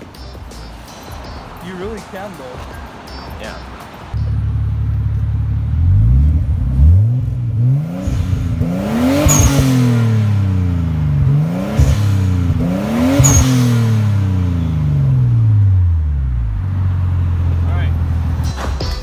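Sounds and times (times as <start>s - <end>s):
car engine idling and revving: 2.6s - 19.0s
turbo chirp: 9.0s - 10.0s, 13.0s - 13.8s.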